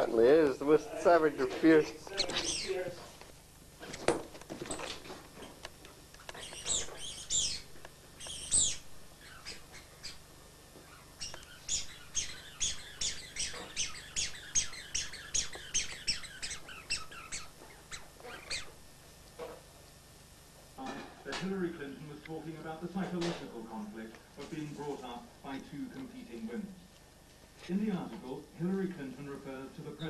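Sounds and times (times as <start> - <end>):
dog yelping and whining: 10.9 - 18.7.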